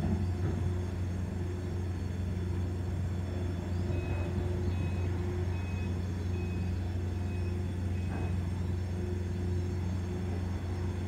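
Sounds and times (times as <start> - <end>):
ship machinery humming: 0.0 - 11.0
reversing alarm beeping: 3.6 - 10.5.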